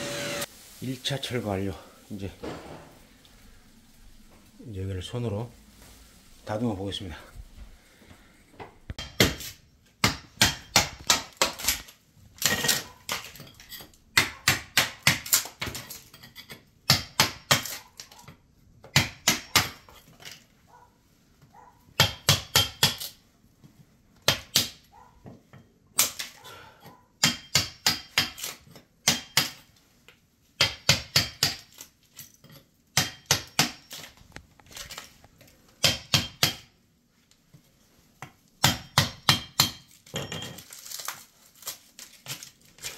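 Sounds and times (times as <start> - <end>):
hammer striking chisel: 8.9 - 11.8, 18.9 - 19.9, 22.0 - 23.0, 27.2 - 29.6, 30.6 - 31.7, 33.0 - 33.9, 35.8 - 36.7, 38.6 - 39.9.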